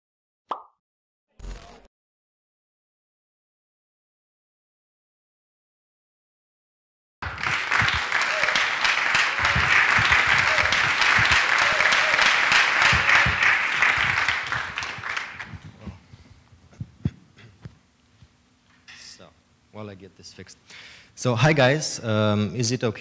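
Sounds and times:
audience applauding: 7.2s - 16.0s.

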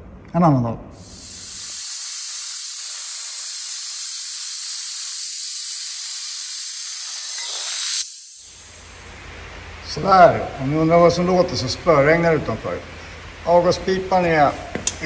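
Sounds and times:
plasma cutter hissing: 1.0s - 9.2s.

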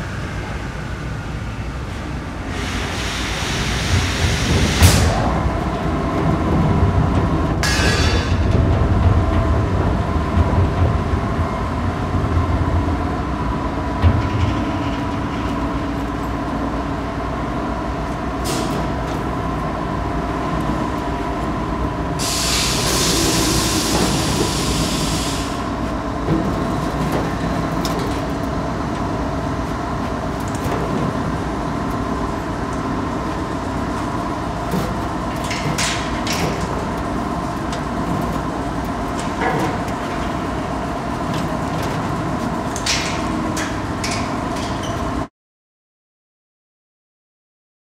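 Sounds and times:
factory machinery clattering hum: 0.0s - 45.3s
hiss: 2.5s - 5.2s, 22.2s - 25.7s.

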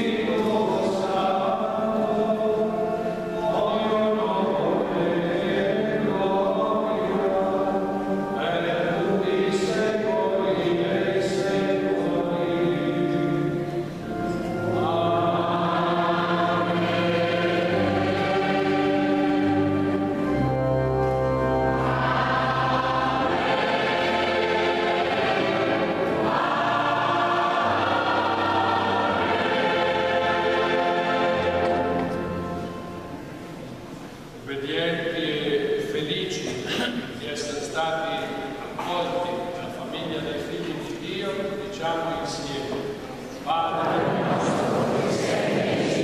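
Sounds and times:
choir chanting: 0.0s - 33.2s, 43.5s - 46.0s
organ low held notes: 0.0s - 46.0s.

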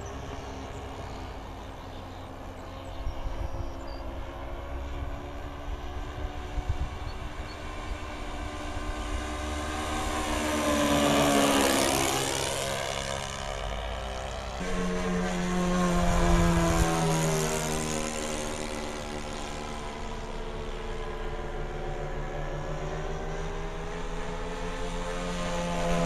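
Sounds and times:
model airplane propeller drone: 0.0s - 26.0s.

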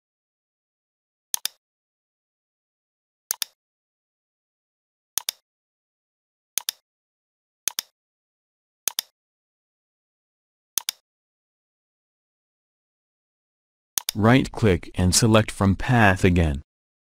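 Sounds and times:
computer mouse clicking: 1.4s - 1.6s, 3.3s - 3.6s, 5.2s - 5.4s, 6.6s - 6.8s, 7.7s - 7.9s, 8.9s - 9.1s, 10.8s - 11.0s, 14.0s - 14.2s.

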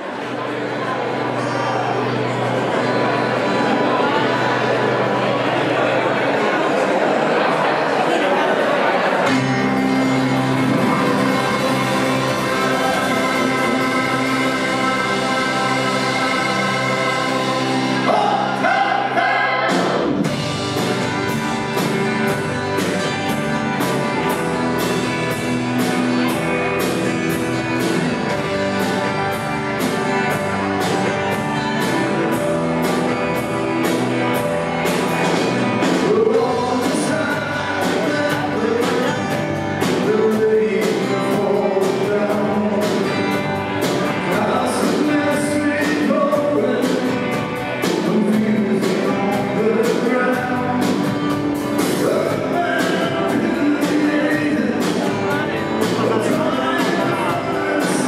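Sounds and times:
rock band playing: 0.0s - 58.0s
drums keeping a beat: 9.2s - 58.0s
man singing: 10.6s - 20.0s, 35.8s - 58.0s.

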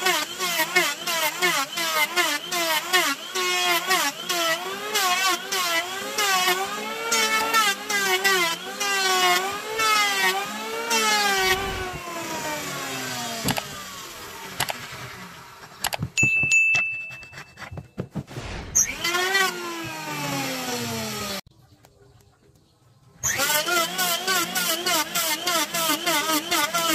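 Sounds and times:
electric hand planer cutting wood: 0.0s - 15.9s, 18.8s - 21.4s, 23.2s - 26.9s
knocks and clicks: 15.6s - 19.0s
bell-like chime: 16.2s - 17.7s.

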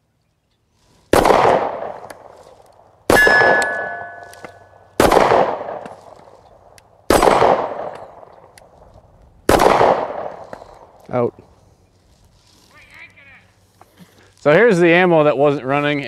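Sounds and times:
pistol shots with echo: 1.2s - 2.0s, 3.1s - 4.4s, 5.0s - 5.8s, 7.1s - 8.2s, 9.5s - 10.4s
steel target ringing: 3.1s - 4.8s.

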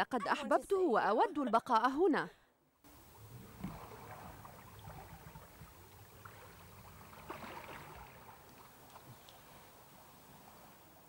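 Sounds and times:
faint low boat rumble: 2.9s - 11.0s.

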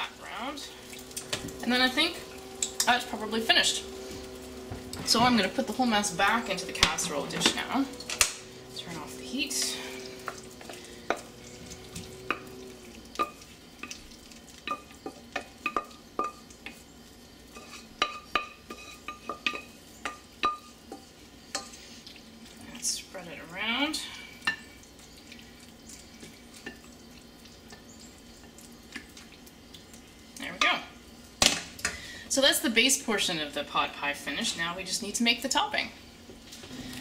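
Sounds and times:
metal spoon scraping pots: 0.9s - 14.0s, 17.5s - 22.0s.

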